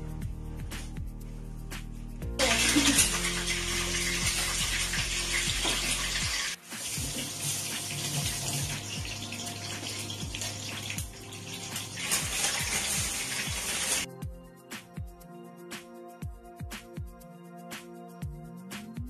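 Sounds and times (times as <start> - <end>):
soft background music: 0.0 - 19.0
rushing water-like hiss: 2.4 - 14.1.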